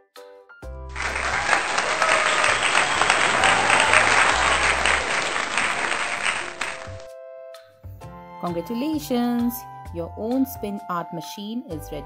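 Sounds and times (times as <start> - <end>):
crowd applause: 0.9 - 7.1
faint background music: 7.7 - 12.0.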